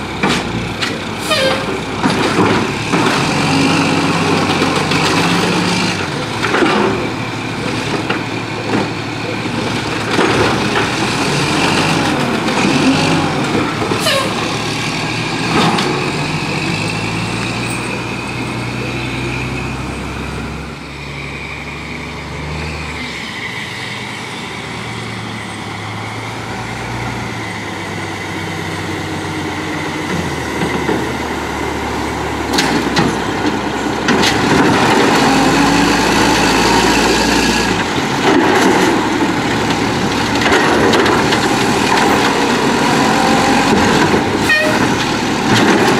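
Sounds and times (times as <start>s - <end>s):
diesel truck engine running: 0.0s - 45.9s
knocks and clatter of cart and arm: 0.1s - 3.4s, 4.2s - 14.3s, 32.5s - 35.4s, 37.7s - 45.9s.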